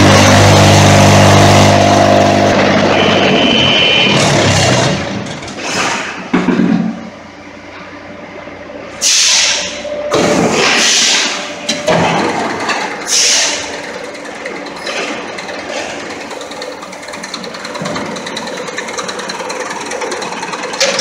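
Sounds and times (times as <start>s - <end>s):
machine hum: 0.0s - 5.6s, 6.3s - 21.0s
machine clanks and thumps: 4.1s - 7.1s, 10.1s - 21.0s
loud hissing bursts: 9.0s - 9.8s, 10.5s - 11.5s, 13.1s - 13.7s.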